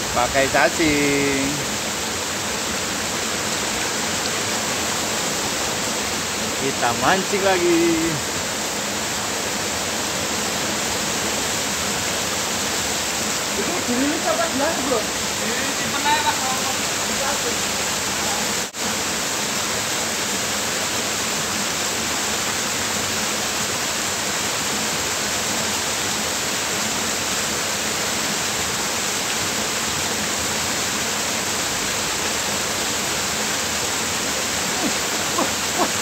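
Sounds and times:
stream pouring into pool: 0:00.0 - 0:36.0.

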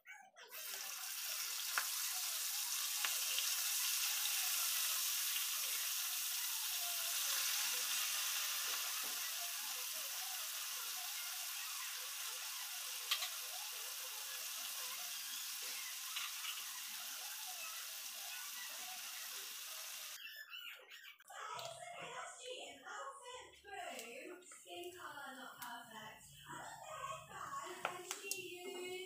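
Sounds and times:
meat sizzling in hot oil: 0:00.5 - 0:20.2.

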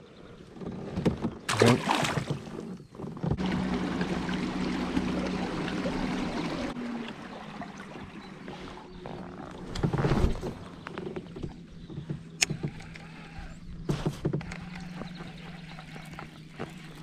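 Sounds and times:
water rushing along hull: 0:01.4 - 0:17.0.

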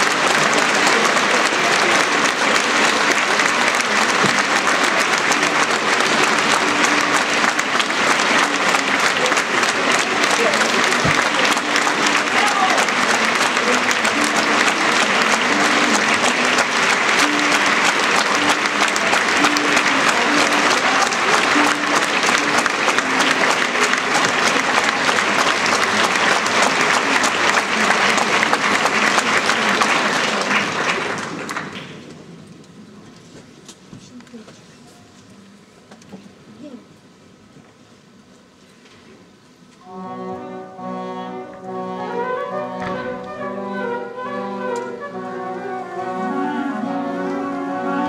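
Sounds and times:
audience applauding: 0:00.0 - 0:32.1.

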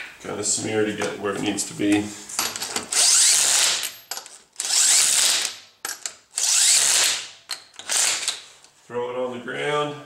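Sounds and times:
impact wrench spinning lug nuts: 0:02.6 - 0:08.4.

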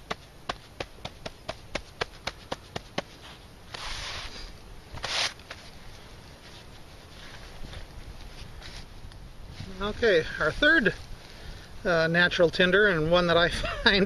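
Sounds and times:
gloved hand patting bark: 0:00.0 - 0:04.1
brushing sweeps on stone: 0:02.2 - 0:11.1.

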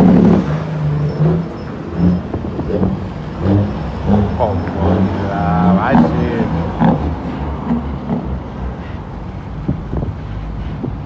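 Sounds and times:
truck engine running: 0:00.0 - 0:11.0
man talking: 0:04.3 - 0:06.7.

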